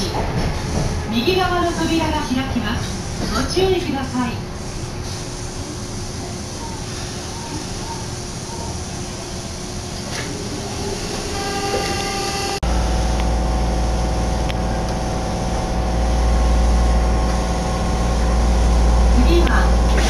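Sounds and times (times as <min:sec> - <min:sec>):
subway train rumble: 0:00.0 - 0:20.0
train motor whine: 0:06.7 - 0:20.0.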